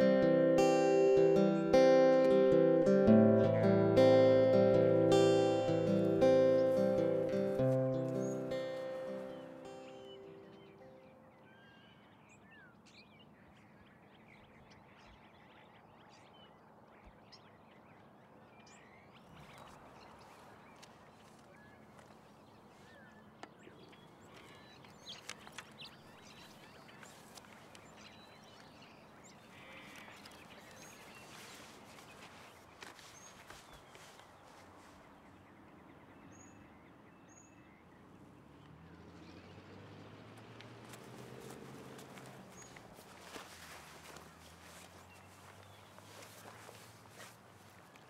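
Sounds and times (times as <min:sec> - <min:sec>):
bird chirps: 0:00.0 - 0:38.0.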